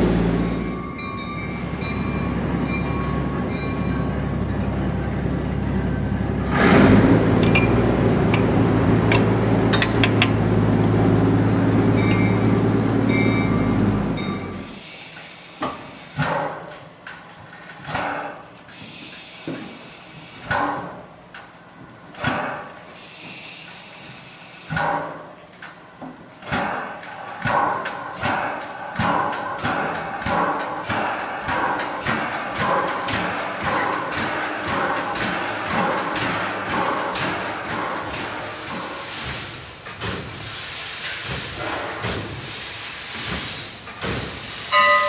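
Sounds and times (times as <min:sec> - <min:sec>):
machinery hum: 0:00.0 - 0:45.0
knocks and clanks: 0:06.5 - 0:10.4, 0:26.0 - 0:40.4.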